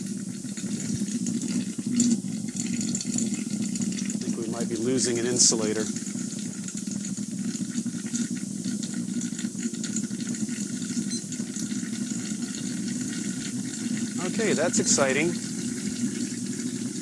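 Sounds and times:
electrolysis cell sizzling and crackling: 0.0 - 17.0
low electrical buzz: 0.1 - 6.6, 12.2 - 17.0.

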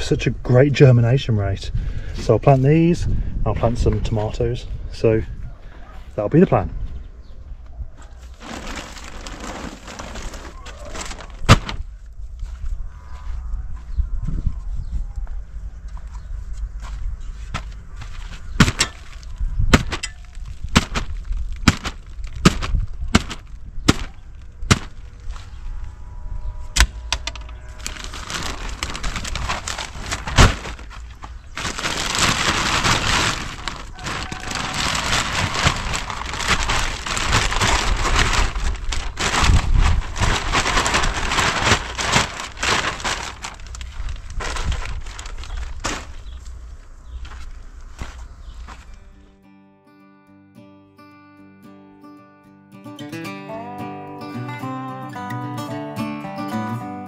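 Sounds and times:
plastic sack crinkling: 8.2 - 12.0, 18.0 - 25.8, 27.1 - 46.6
compost pouring onto soil: 8.3 - 11.7, 31.6 - 46.4
sharp knocks and cracks: 18.6 - 25.1.

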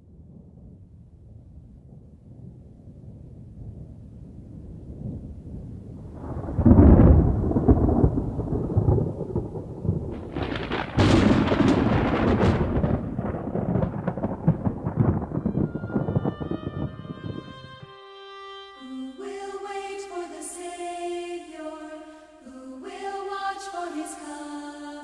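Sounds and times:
thunder rumbling and clapping: 0.0 - 17.8.

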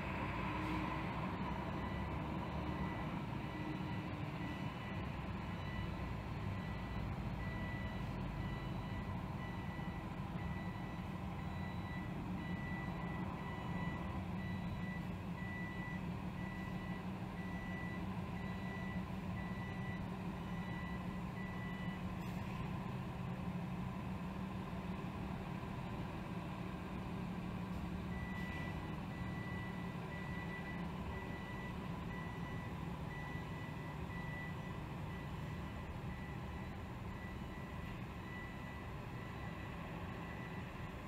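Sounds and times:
truck backup alarm beeping: 0.0 - 41.0.

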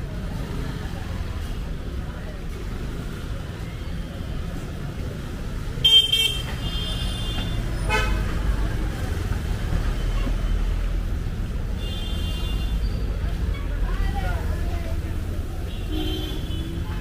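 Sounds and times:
low rumble of engines: 0.0 - 17.0
vehicle horns honking: 5.8 - 8.3, 15.7 - 16.8.

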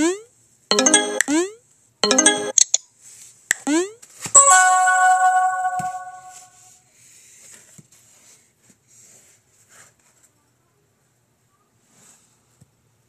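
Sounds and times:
bell-like message chime: 0.7 - 1.3, 2.0 - 2.6, 4.4 - 6.6.

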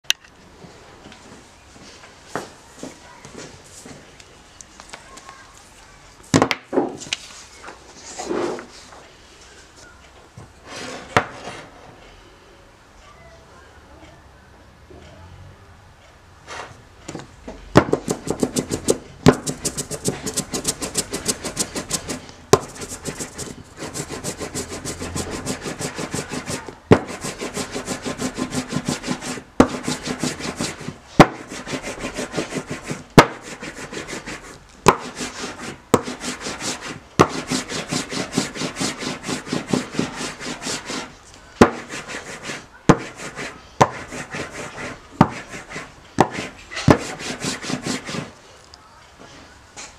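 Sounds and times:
ink roller rubbing on wood: 18.0 - 48.4.

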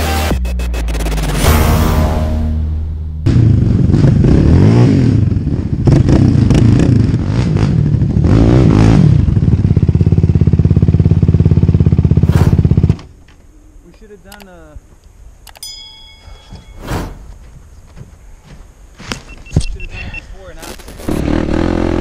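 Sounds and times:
quad bike engines revving: 3.3 - 13.0, 21.0 - 22.0.

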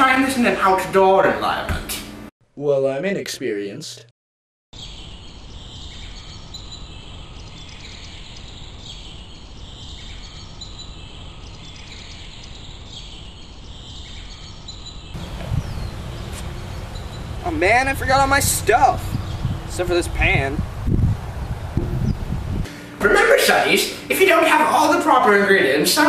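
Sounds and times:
high chirping: 4.8 - 20.6, 21.5 - 25.4
low rumbling noise: 15.2 - 25.0.

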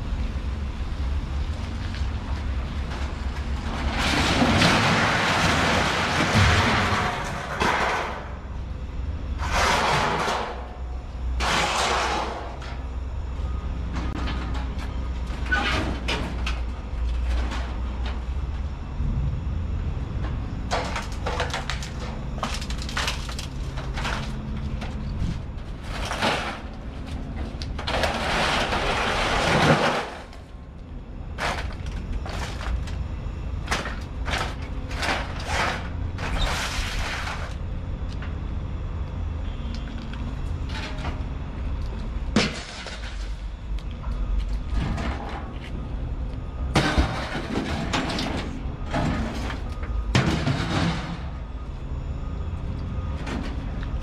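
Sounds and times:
engine rumble: 0.0 - 54.0
scrap metal clanking and rattling: 2.9 - 8.5, 9.4 - 10.8, 11.4 - 12.8, 15.4 - 18.2, 20.7 - 30.5, 31.4 - 33.0, 33.6 - 37.6, 42.3 - 45.8, 46.7 - 51.5
scraping metal crash: 3.7 - 8.5, 9.4 - 10.7, 11.4 - 12.8, 20.7 - 26.9, 27.8 - 30.5, 42.3 - 43.4, 46.7 - 51.5.

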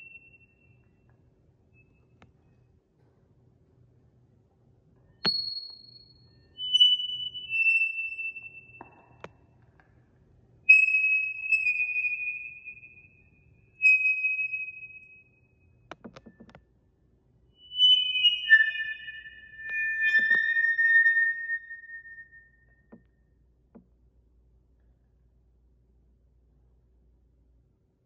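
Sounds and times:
high chime-like ringing tones: 17.6 - 22.9.

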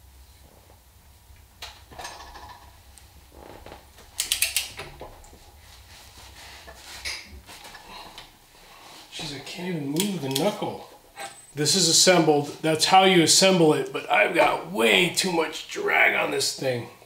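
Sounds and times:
socket wrench clicking: 4.2 - 4.8.

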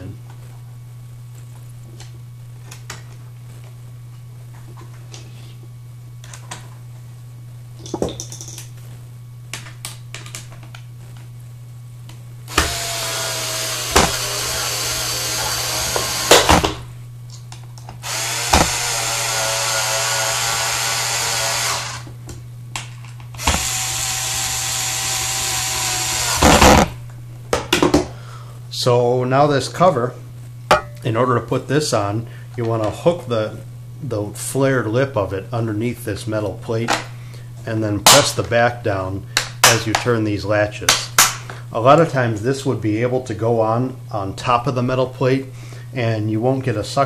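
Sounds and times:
drill motor whine: 12.5 - 16.8, 18.0 - 22.1, 23.4 - 27.0.

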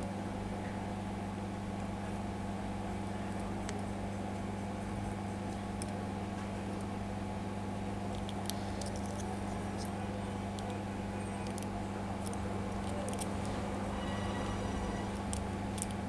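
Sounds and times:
low electrical hum: 0.0 - 16.0
faint clicks of handled parts: 8.1 - 10.8, 11.4 - 13.6, 15.2 - 16.0.

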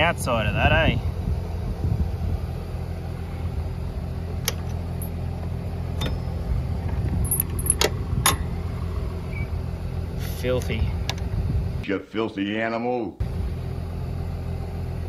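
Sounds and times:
tractor engine idling: 0.0 - 11.8, 13.2 - 15.0
chain jingle: 7.2 - 7.8
metallic clinks: 7.2 - 8.5.

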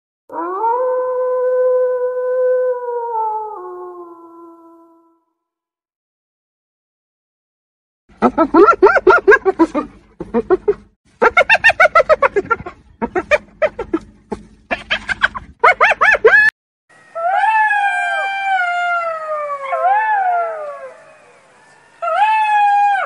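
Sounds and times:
hyena giggling yelps: 8.2 - 14.0, 14.7 - 16.5
jackal howling: 17.0 - 23.0.

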